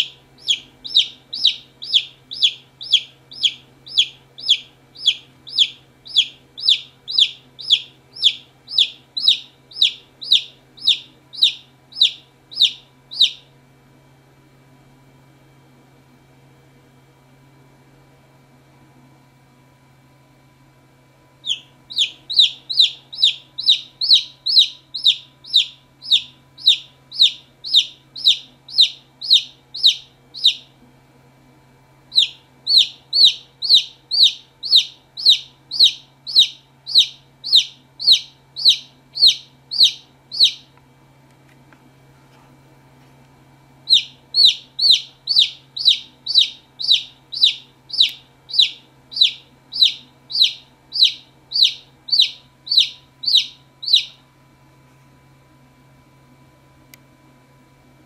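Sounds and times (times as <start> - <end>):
chick peeping: 0.0 - 13.5, 21.4 - 30.8, 32.1 - 40.8, 43.9 - 54.2
faint low hum: 0.0 - 13.6, 15.8 - 58.0.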